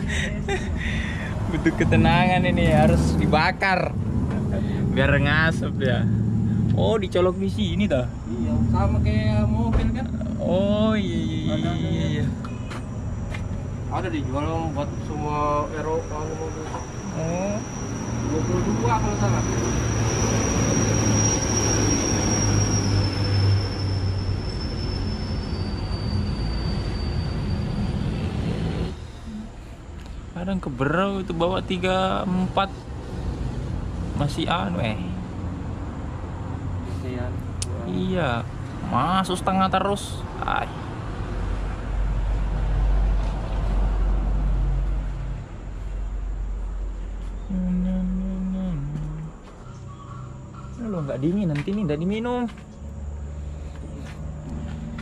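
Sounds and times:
large engine humming: 0:00.0 - 0:30.2, 0:41.6 - 0:50.3
thin high whine: 0:13.9 - 0:29.4.

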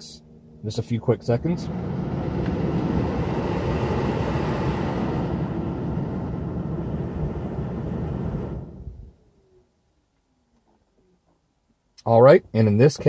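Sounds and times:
blower fan rushing air: 0:00.0 - 0:09.3.

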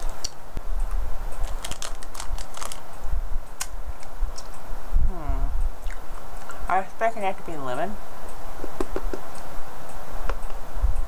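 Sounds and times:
crunching hard candy: 0:01.4 - 0:02.9.

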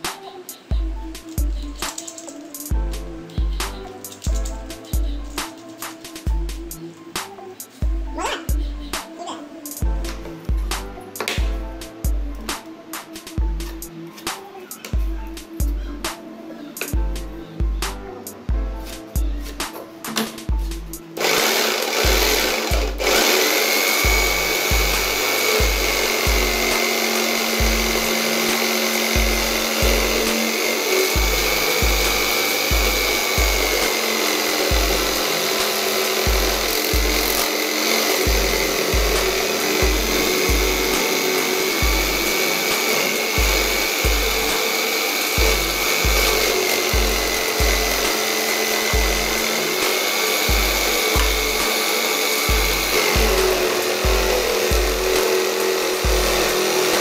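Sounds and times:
jigsaw motor whine: 0:21.2 - 0:57.0.

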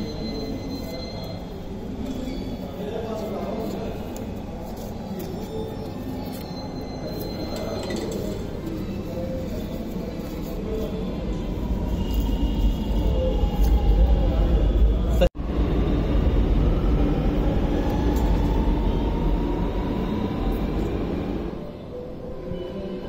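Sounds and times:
train rumbling: 0:10.1 - 0:21.8.

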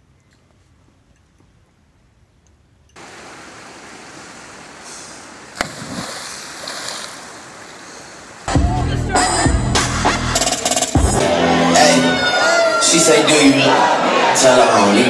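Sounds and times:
river water rushing: 0:03.0 - 0:08.5
person splashing into water: 0:05.6 - 0:07.6.

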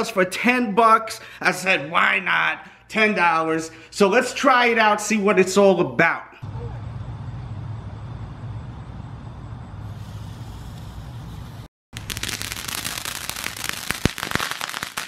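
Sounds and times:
low rumble: 0:06.4 - 0:11.7
hiss: 0:09.8 - 0:11.7
firework fountain crackling and popping: 0:09.8 - 0:15.0.

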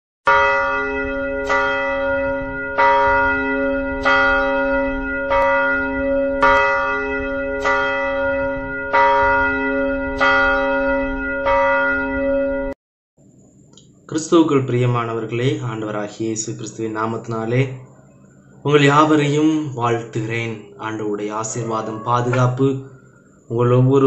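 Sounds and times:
church bell tolling: 0:00.3 - 0:12.8, 0:20.0 - 0:23.2.

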